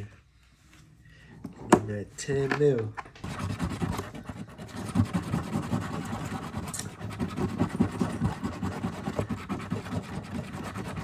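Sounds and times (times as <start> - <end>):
scratching a lottery ticket: 3.2 - 11.0.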